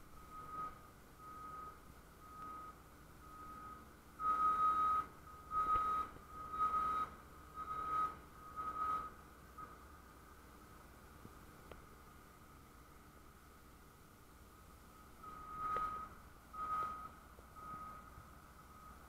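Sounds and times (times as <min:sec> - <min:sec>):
reversing alarm beeping: 0:00.1 - 0:09.8, 0:15.0 - 0:19.0.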